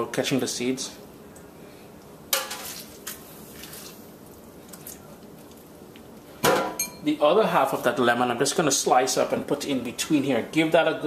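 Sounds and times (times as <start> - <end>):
lemon squishing and dripping: 1.3 - 6.3.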